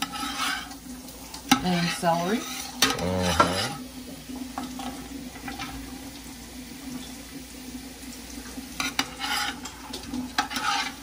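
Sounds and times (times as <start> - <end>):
spoon scraping pot: 0.0 - 0.8, 1.5 - 3.8, 8.8 - 9.8, 10.4 - 11.0
vegetables sizzling in oil: 0.0 - 11.0.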